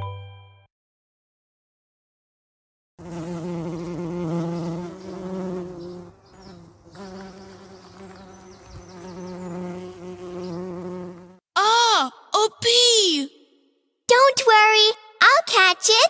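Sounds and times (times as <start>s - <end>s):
cartoon bee buzzing: 3.0s - 11.4s.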